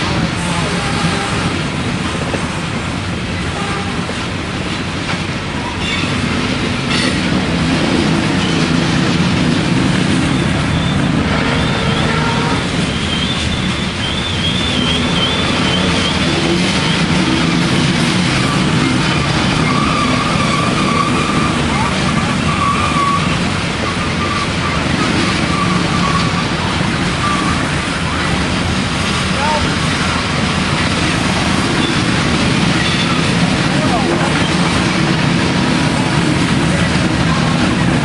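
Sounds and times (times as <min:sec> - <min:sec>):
freight train wheels rumbling: 0:00.0 - 0:38.0
high-pitched wheel squeal: 0:19.6 - 0:23.4.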